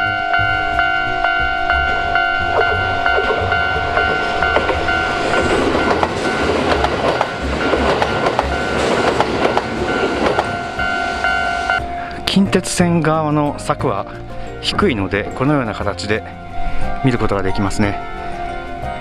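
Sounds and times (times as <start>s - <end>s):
level-crossing bell ringing: 0.0s - 13.8s
train rumbling past: 0.0s - 19.0s.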